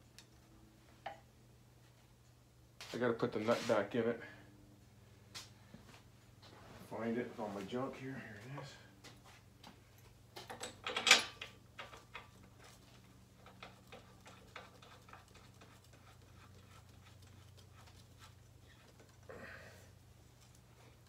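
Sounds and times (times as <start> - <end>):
metal parts clinking: 10.4 - 12.3.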